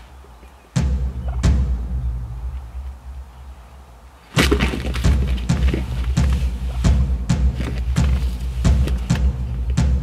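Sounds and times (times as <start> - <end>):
turkey gobbling: 0.4 - 3.1, 4.4 - 9.0.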